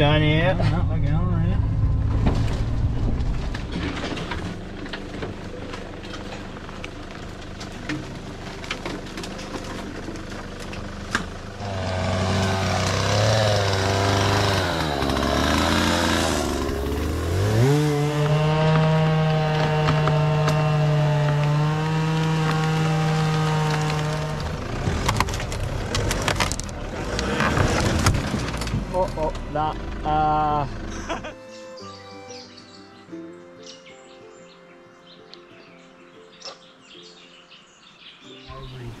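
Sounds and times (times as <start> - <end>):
engine revving under load: 0.0 - 5.7, 10.6 - 31.2
twigs and brush crackling: 1.9 - 11.5, 12.1 - 29.5.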